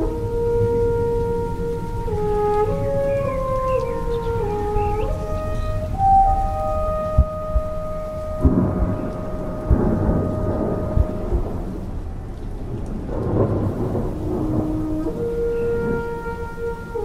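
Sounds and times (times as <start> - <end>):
french horn note: 0.0 - 12.0, 13.2 - 17.0
rain: 0.0 - 17.0
rumbling thunder: 0.0 - 17.0
low thumps: 3.3 - 12.2.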